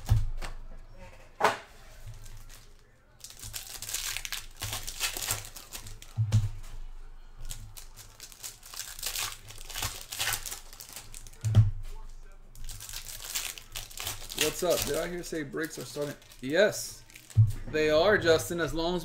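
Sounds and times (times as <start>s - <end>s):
foil wrappers crinkling: 1.8s - 6.2s, 7.4s - 11.4s, 12.5s - 17.4s.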